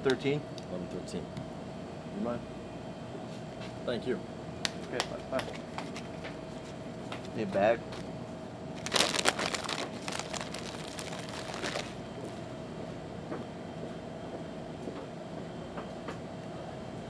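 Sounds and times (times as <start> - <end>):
steady background hum: 0.0 - 17.0
plastic packaging crinkling: 8.8 - 12.0.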